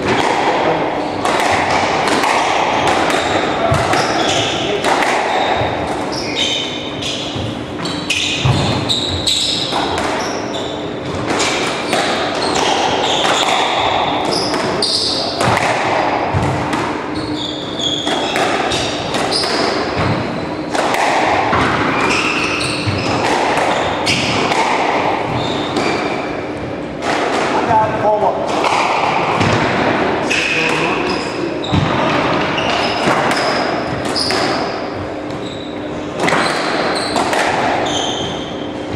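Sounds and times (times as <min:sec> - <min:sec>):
squash ball hits: 0:00.0 - 0:35.4, 0:36.1 - 0:38.9
shoes squeaking on wooden floor: 0:03.9 - 0:10.8, 0:17.1 - 0:20.4, 0:21.9 - 0:24.4, 0:25.2 - 0:26.2, 0:31.0 - 0:38.6.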